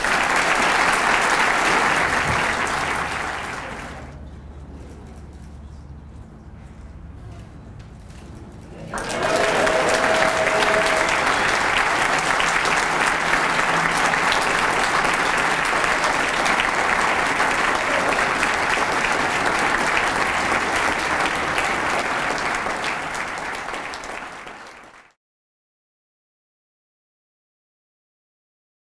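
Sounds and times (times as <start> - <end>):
audience applauding: 0.0 - 4.2, 8.8 - 25.2.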